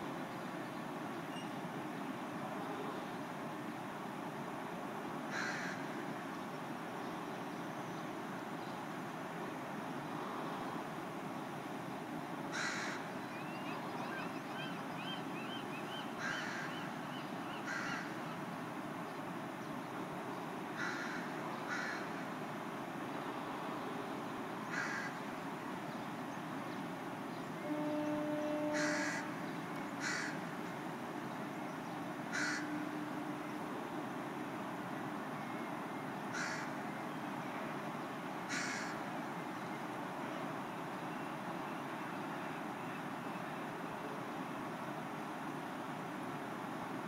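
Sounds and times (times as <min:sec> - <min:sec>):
steady background noise: 0:00.0 - 0:47.0
crows cawing: 0:05.3 - 0:05.9, 0:12.5 - 0:13.0, 0:16.2 - 0:16.7, 0:17.6 - 0:18.1, 0:20.8 - 0:22.2, 0:24.7 - 0:25.2, 0:28.7 - 0:29.3, 0:30.0 - 0:30.4, 0:32.3 - 0:32.8, 0:36.3 - 0:36.8, 0:38.5 - 0:39.0.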